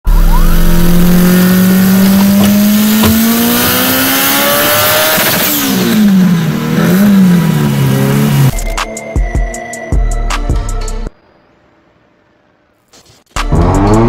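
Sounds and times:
car engine accelerating hard: 0.1s - 8.5s, 13.5s - 14.0s.

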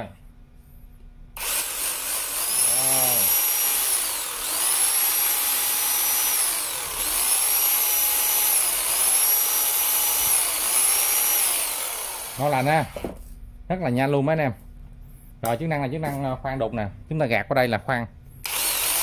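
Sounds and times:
rotary hammer drill motor whining: 1.4s - 13.1s, 18.4s - 19.0s.

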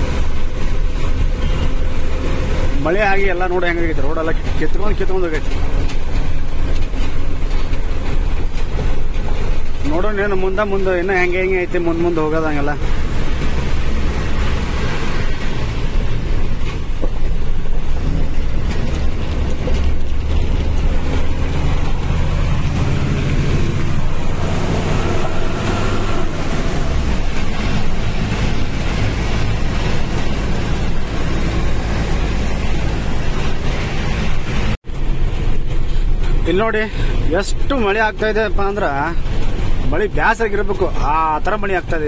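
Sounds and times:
cab rattling and clicking: 0.0s - 42.0s
road noise: 0.0s - 42.0s
truck engine drone: 0.0s - 42.0s.

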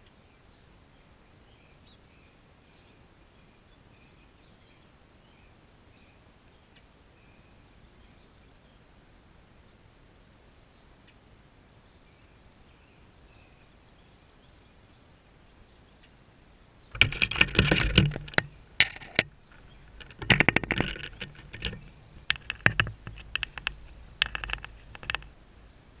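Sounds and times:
camera handling scraping and clicking: 16.9s - 25.3s.

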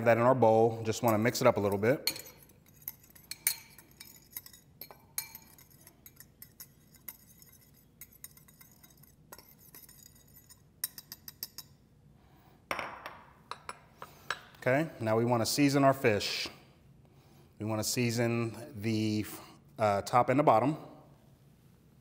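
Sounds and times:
spoon clinking on glass bowl: 0.9s - 11.8s.

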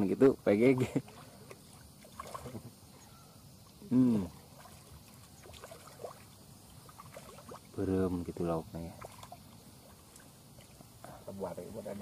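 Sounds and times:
fish splashing in water: 0.8s - 2.7s, 4.4s - 7.8s, 8.9s - 10.8s.

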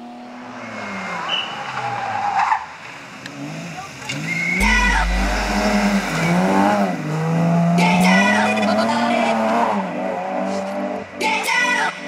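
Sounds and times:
car engine revving hard: 3.2s - 11.0s.

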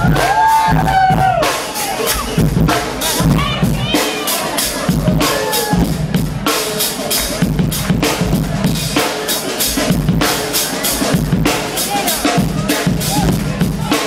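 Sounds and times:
drum kit solo: 0.0s - 14.0s.

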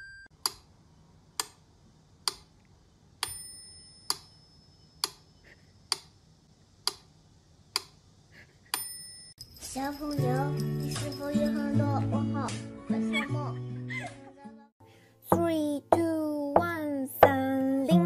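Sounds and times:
metronome bell ringing: 3.3s - 5.0s, 8.8s - 12.5s.

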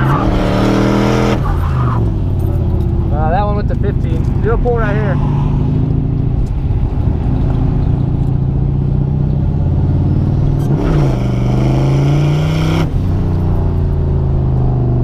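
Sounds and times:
engine revving at full throttle: 0.0s - 1.4s, 9.8s - 13.0s.

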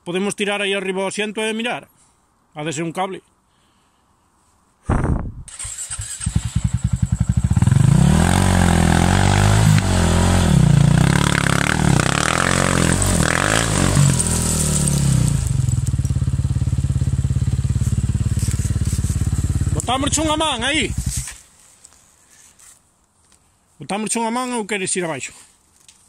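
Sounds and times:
motorcycle engine starting and revving: 5.5s - 21.4s.

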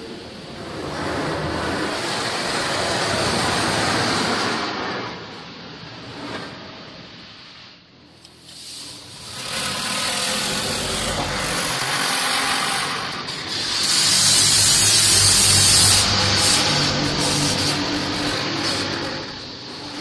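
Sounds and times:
water spray hissing on car: 8.4s - 20.0s.

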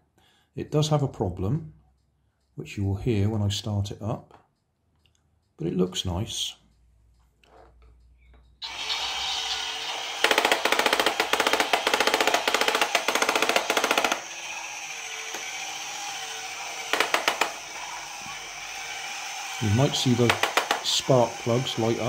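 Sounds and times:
small electric motor whirring: 8.6s - 22.0s.

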